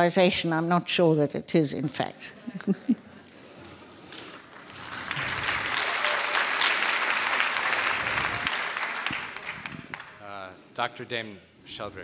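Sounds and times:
audience applauding: 4.3 - 10.2.

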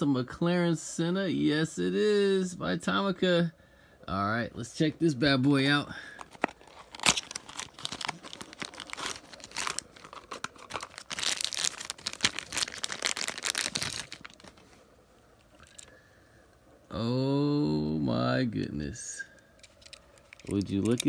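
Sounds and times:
plastic wrapper crinkling: 6.1 - 14.8, 15.4 - 16.0, 19.5 - 21.0
cardboard box being opened: 6.2 - 14.0.

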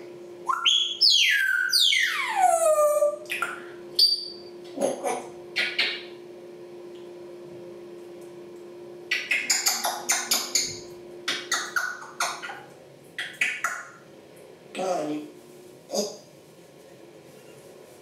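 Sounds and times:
parrot clicking: 9.1 - 10.7, 13.2 - 13.9.

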